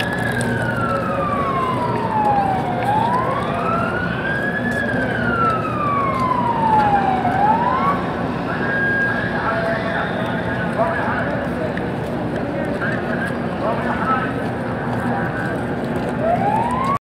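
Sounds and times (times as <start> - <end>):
siren wailing: 0.0 - 10.5, 16.0 - 17.0.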